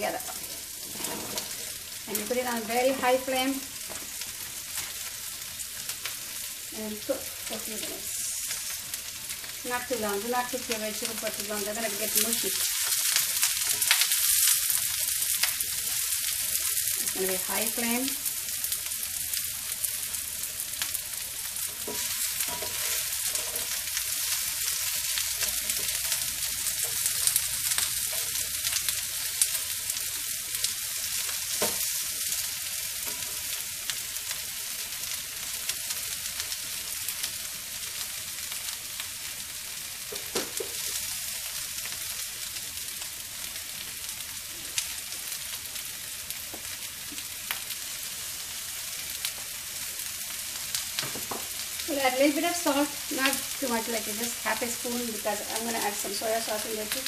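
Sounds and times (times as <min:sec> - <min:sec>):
vegetables sizzling in a frying pan: 0:00.0 - 0:57.0
spatula clicking and scraping: 0:21.8 - 0:23.8.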